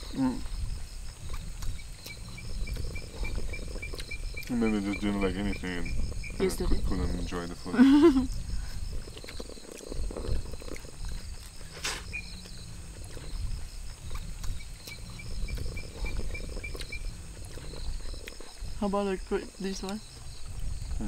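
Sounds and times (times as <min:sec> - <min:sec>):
crickets chirping: 0:00.0 - 0:21.0
lower pulsing chirping: 0:00.0 - 0:21.0
chewing: 0:00.8 - 0:05.3, 0:08.5 - 0:18.8.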